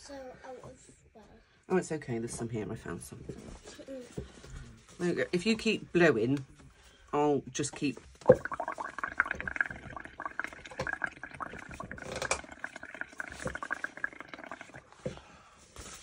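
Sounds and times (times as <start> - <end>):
paint bubbling through a straw: 8.2 - 15.2.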